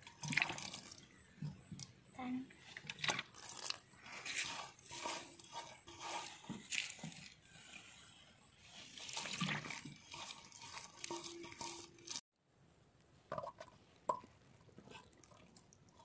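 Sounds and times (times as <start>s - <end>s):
hand mixing wet paste on metal: 0.0s - 12.2s.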